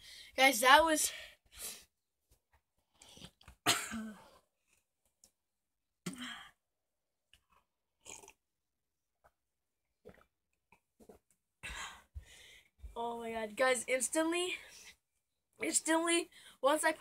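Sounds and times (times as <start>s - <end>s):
person gagging and coughing: 3.6s - 4.4s.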